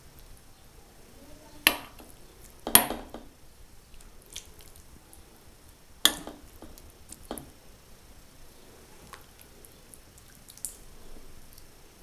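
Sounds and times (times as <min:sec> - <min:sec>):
wet squelches: 0:03.8 - 0:11.8
utensil knocking on glass: 0:06.1 - 0:07.5.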